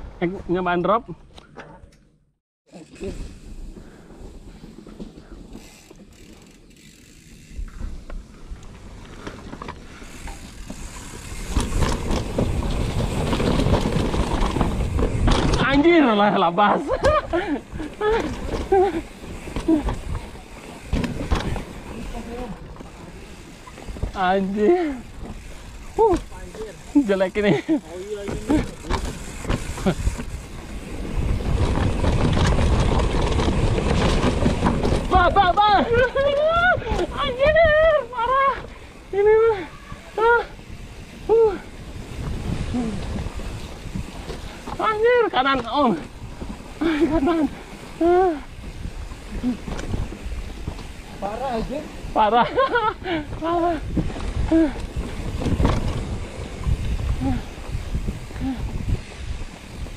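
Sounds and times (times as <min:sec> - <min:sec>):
tyre and trail noise: 0:00.0 - 0:59.9
bike rattling over rough ground: 0:00.2 - 0:59.9
bicycle freewheel ratchet clicking: 0:02.7 - 0:15.9, 0:16.8 - 0:59.9
wind buffeting microphone: 0:27.6 - 0:45.2, 0:46.0 - 0:59.9.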